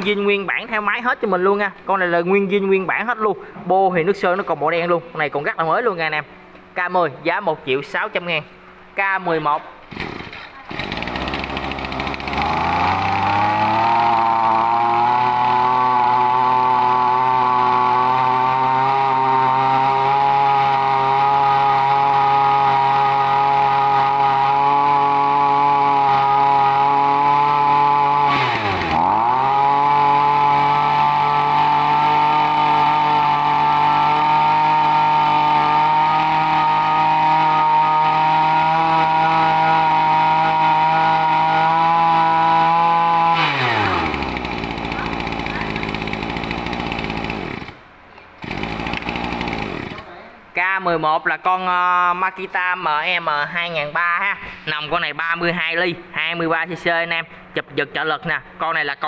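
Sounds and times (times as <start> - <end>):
brush cutter engine revving: 9.9 - 47.8, 48.4 - 50.1.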